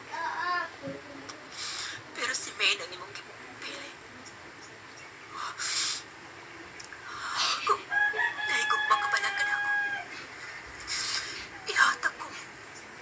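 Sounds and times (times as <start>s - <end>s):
rooster crowing: 7.9s - 10.2s.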